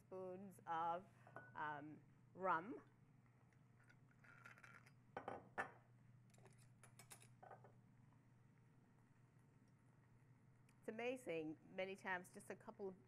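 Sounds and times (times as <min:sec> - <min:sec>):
glass bottle knocking on counter: 0:05.2 - 0:05.8.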